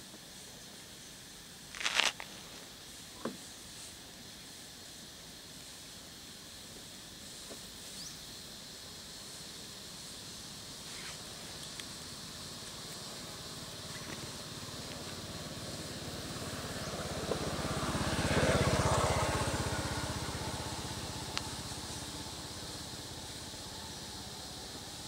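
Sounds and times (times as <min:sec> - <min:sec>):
background hiss: 0:00.0 - 0:25.0
vehicle engine passing: 0:14.4 - 0:25.0.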